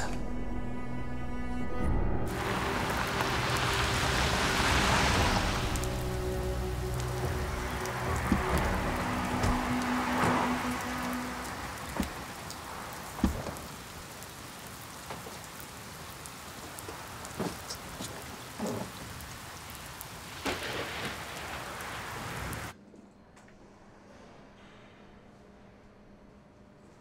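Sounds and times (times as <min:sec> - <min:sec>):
rain on pavement: 0:02.3 - 0:22.8.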